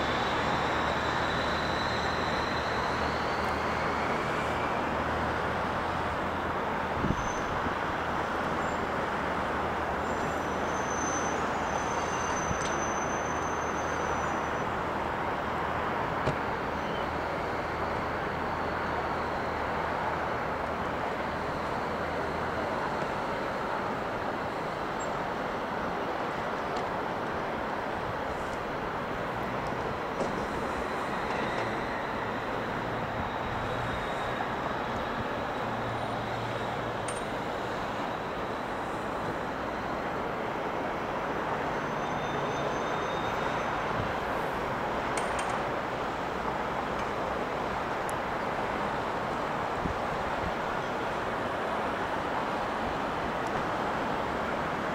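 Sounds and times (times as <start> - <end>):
faint high whistle: 0.0 - 5.2, 7.0 - 7.6, 10.0 - 14.8, 16.5 - 19.8, 30.2 - 38.8, 41.6 - 44.1
distant engine and traffic hum: 0.0 - 54.9.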